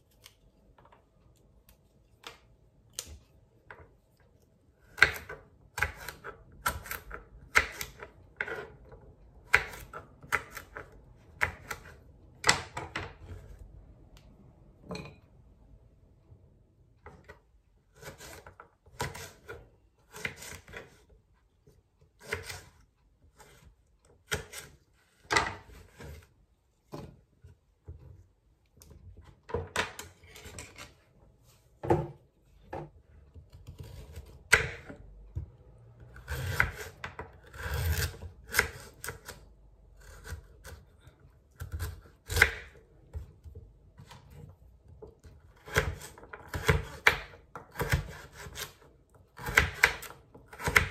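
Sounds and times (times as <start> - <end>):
knife chopping on wooden board: 33.6 - 35.6, 45.6 - 48.8, 49.4 - 50.9.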